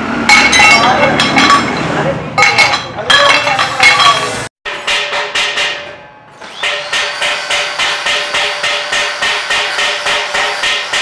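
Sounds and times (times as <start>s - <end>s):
angle grinder grinding metal: 6.4s - 11.0s.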